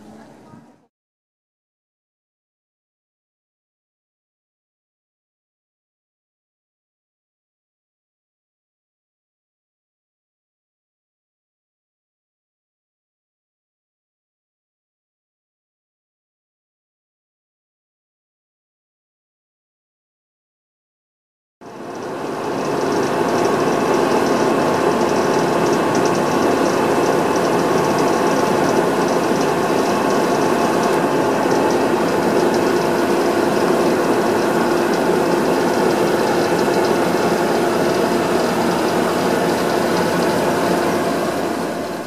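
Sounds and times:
loud mechanical drone: 0:21.6 - 0:42.0
rapid clicking rattle: 0:21.9 - 0:42.0.

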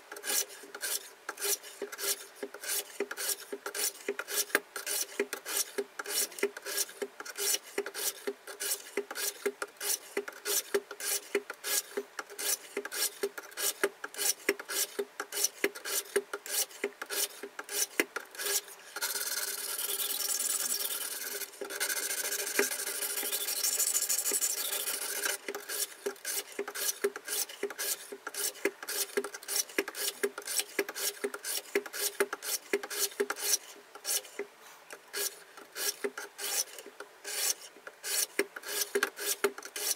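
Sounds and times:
sharpening plates rasping on knife blade: 0:00.2 - 0:18.6, 0:35.1 - 0:39.9.

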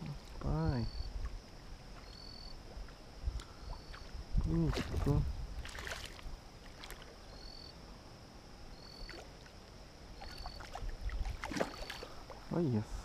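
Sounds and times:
water sloshing: 0:01.2 - 0:07.2, 0:08.9 - 0:12.5
fish splashing and thrashing: 0:03.7 - 0:07.2, 0:10.1 - 0:12.5.

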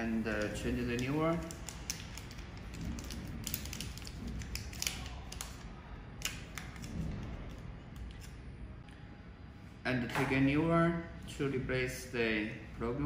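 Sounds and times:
paper wrapper crinkling: 0:00.2 - 0:08.4.

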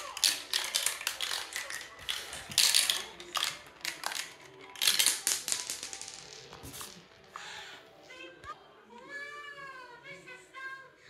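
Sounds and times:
marbles rattling on plastic tracks: 0:00.0 - 0:07.2.

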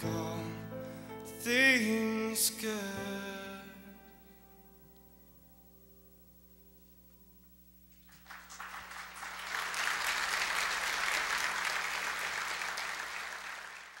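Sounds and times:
piano chord: 0:00.0 - 0:06.1
congregation applauding: 0:07.9 - 0:14.0.

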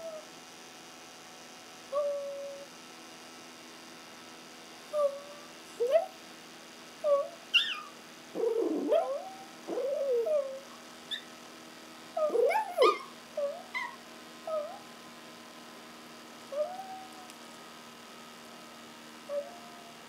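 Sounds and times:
dogs howling and yipping: 0:07.1 - 0:11.2, 0:12.2 - 0:14.9, 0:16.5 - 0:17.3, 0:19.3 - 0:20.0.

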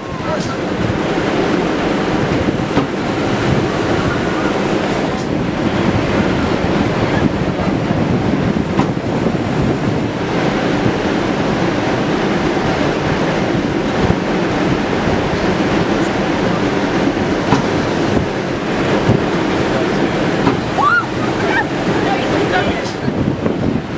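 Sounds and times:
wind buffeting microphone: 0:00.0 - 0:23.9.

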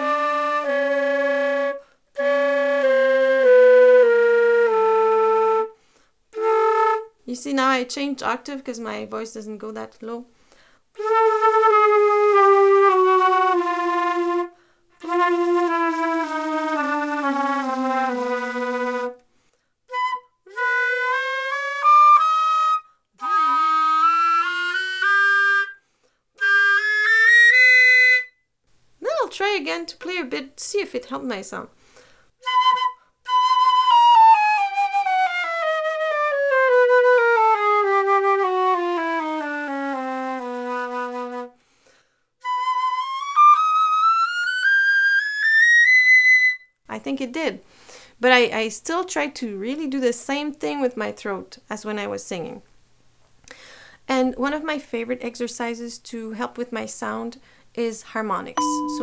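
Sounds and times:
flute played while singing: 0:00.0 - 0:05.8, 0:06.4 - 0:07.2, 0:11.0 - 0:19.2, 0:19.9 - 0:25.8, 0:26.4 - 0:28.4, 0:32.4 - 0:41.6, 0:42.4 - 0:46.8
breath: 0:01.8 - 0:02.1, 0:05.8 - 0:06.2, 0:10.3 - 0:10.9, 0:14.6 - 0:15.0, 0:19.2 - 0:19.8, 0:25.8 - 0:26.3, 0:31.8 - 0:32.4, 0:41.6 - 0:42.4, 0:47.6 - 0:48.2, 0:53.4 - 0:54.1, 0:57.4 - 0:57.7.

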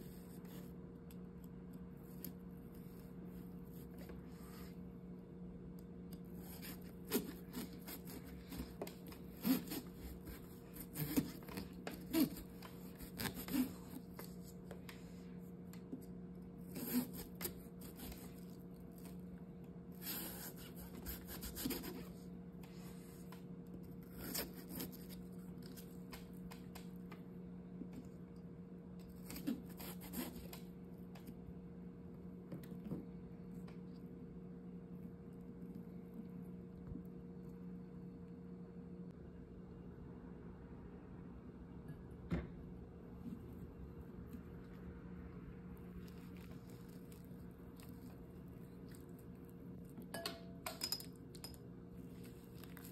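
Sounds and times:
knife sawing pumpkin rind: 0:06.4 - 0:14.2, 0:20.0 - 0:22.2, 0:29.2 - 0:30.5.

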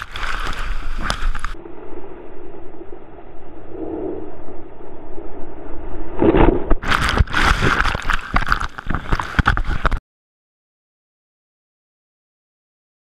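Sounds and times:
water rushing and splashing: 0:00.0 - 0:01.7, 0:06.8 - 0:10.0.

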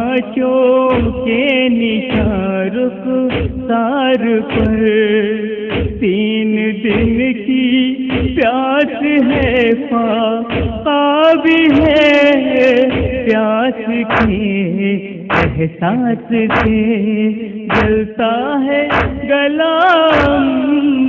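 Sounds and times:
man singing a lament: 0:00.0 - 0:21.0
low thumping beat: 0:00.9 - 0:01.4, 0:02.1 - 0:02.5, 0:03.3 - 0:03.8, 0:04.5 - 0:05.0, 0:05.7 - 0:06.2, 0:06.9 - 0:07.4, 0:08.1 - 0:08.5, 0:10.5 - 0:10.9, 0:12.8 - 0:13.4, 0:14.1 - 0:14.5, 0:15.3 - 0:15.7, 0:16.5 - 0:17.0, 0:17.7 - 0:18.1, 0:18.9 - 0:19.3, 0:20.1 - 0:20.5.

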